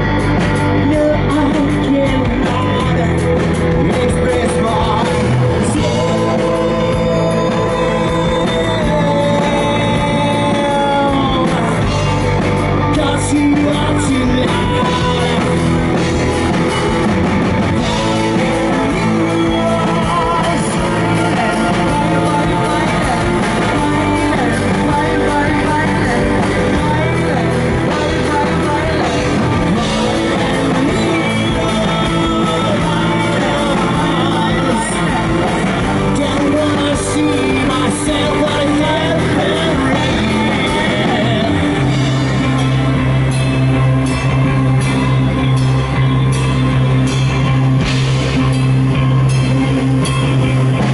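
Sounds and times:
loud rock music: 0.0 - 50.9
woman singing into microphone: 18.3 - 41.7.

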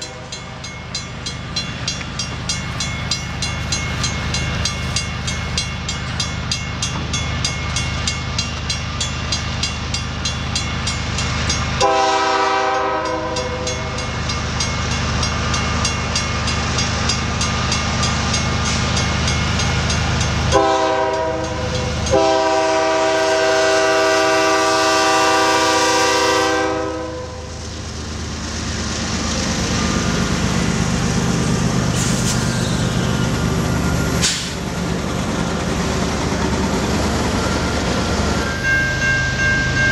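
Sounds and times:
crossing bell ringing: 0.0 - 24.7, 35.4 - 39.9
locomotive air horn: 11.8 - 13.8, 20.5 - 27.5
engines and wheels rumbling: 27.4 - 39.9.

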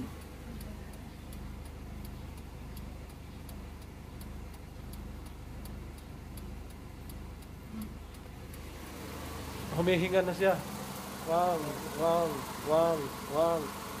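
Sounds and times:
car engine idling: 0.0 - 14.0
turn-signal relay ticking: 0.0 - 14.0.

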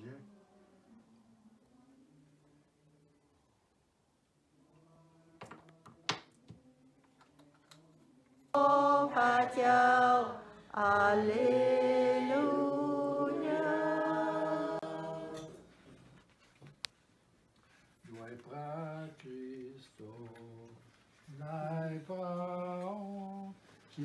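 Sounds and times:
person singing unaccompanied: 8.6 - 15.7.

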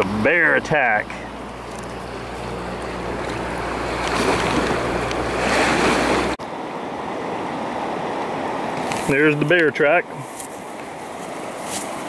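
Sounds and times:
low steady hum: 0.0 - 6.4
rushing river water: 0.0 - 12.0.

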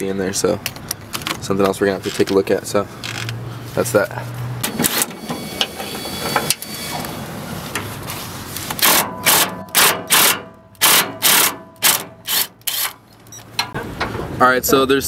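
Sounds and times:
cordless impact wrench bursts: 8.8 - 13.0.

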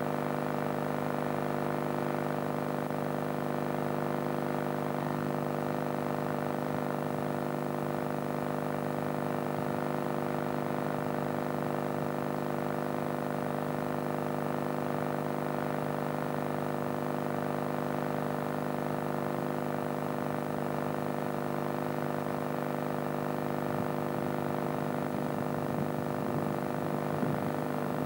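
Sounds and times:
steady electrical buzz: 20.4 - 28.0.

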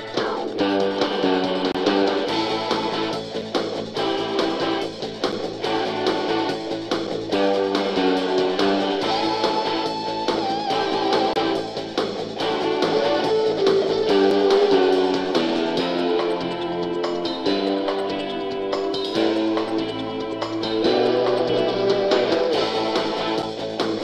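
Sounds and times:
guitar-led instrumental music: 0.0 - 24.0.

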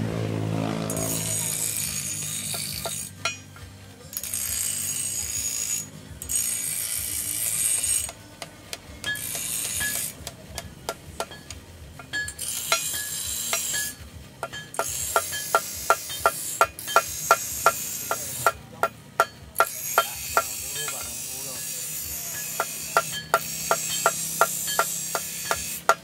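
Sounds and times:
hammer tapping metal pins: 22.4 - 26.0.

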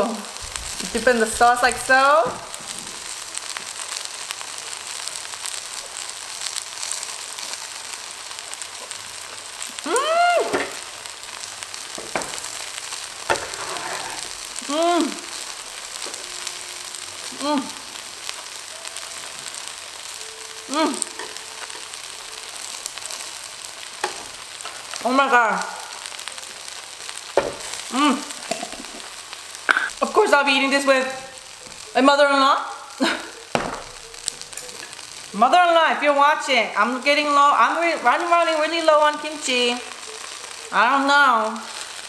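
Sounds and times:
pancake sizzling in oil: 0.0 - 42.0
person humming mmm while eating: 13.9 - 15.4, 18.7 - 22.7, 29.7 - 30.0.

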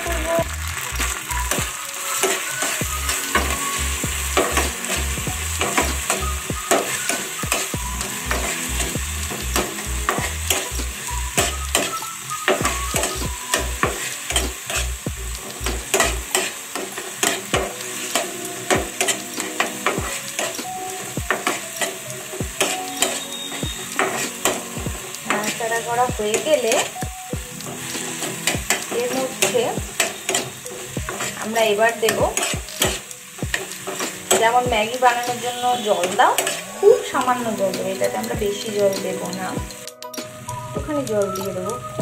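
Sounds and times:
frying sizzle: 0.0 - 42.0
metal spatula scraping frying pan: 11.7 - 15.0, 15.6 - 27.0, 27.6 - 39.5.

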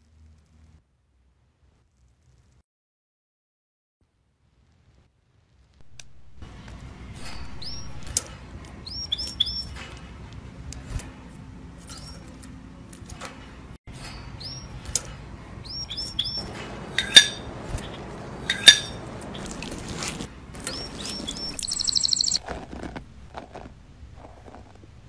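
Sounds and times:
small birds chirping: 6.6 - 10.4, 14.1 - 24.8
cutlery and dishes clinking: 16.5 - 21.1.

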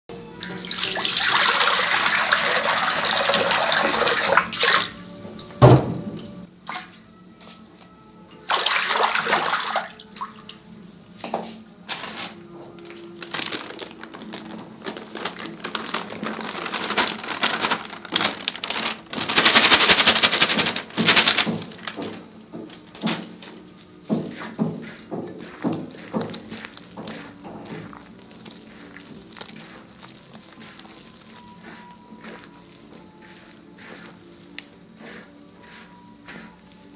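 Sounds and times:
water pouring into metal wok: 0.4 - 5.0, 8.5 - 10.4.

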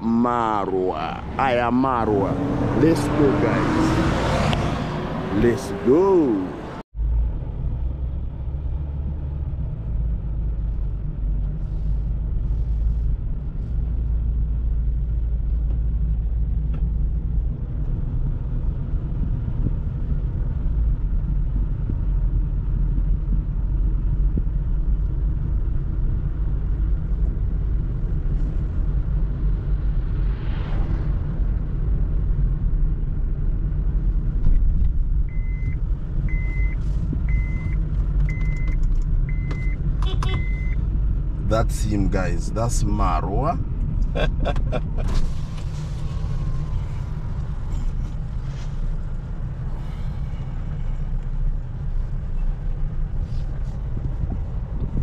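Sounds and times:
car engine and road rumble: 0.0 - 55.0
short electronic beeps: 35.3 - 40.8.

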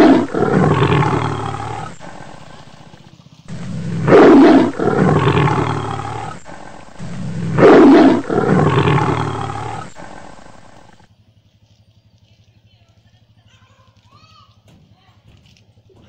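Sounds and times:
loud animal roars: 0.0 - 11.0.

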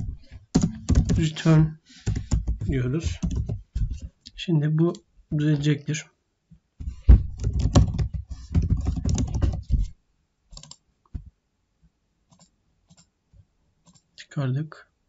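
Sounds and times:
typing on keyboard: 0.0 - 1.4, 2.0 - 3.6, 7.4 - 9.6, 10.5 - 10.8.

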